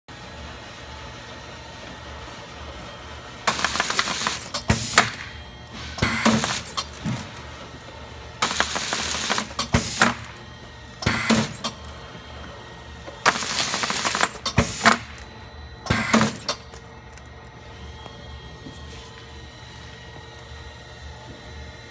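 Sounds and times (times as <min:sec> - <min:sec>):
steady machine hum: 0:00.1 - 0:21.9
machine bursts with rapid clicking: 0:03.4 - 0:12.1, 0:13.0 - 0:18.1.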